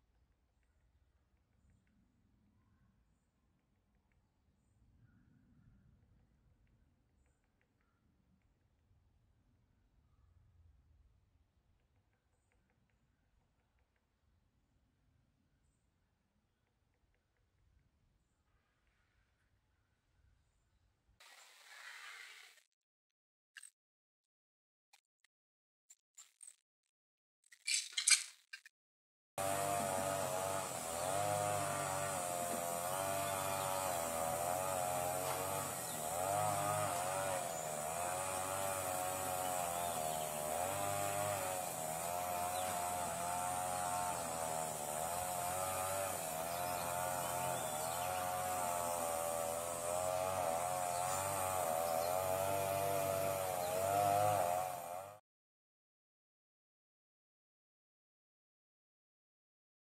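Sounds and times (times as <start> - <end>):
buzzing drone wavering in pitch: 29.4 - 55.2.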